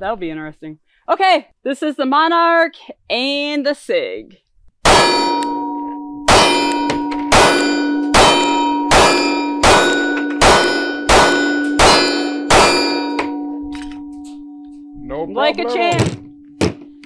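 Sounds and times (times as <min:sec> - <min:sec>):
gunshots hitting a ringing steel target: 0:04.8 - 0:14.4.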